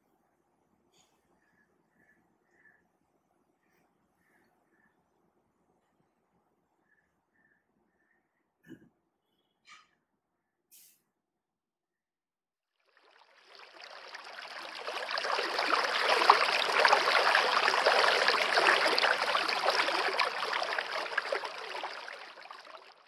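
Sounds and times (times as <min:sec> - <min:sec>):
river flowing over stones: 0:13.7 - 0:22.9.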